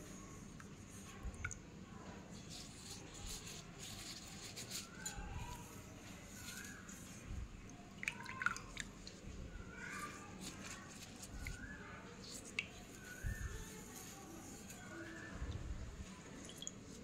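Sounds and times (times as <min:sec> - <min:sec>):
dripping: 0:00.6 - 0:17.0.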